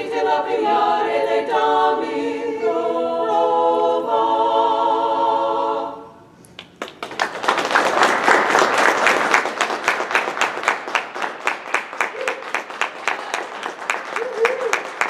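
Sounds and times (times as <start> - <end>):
women's choir singing: 0.0 - 6.2
audience applause: 6.6 - 15.0.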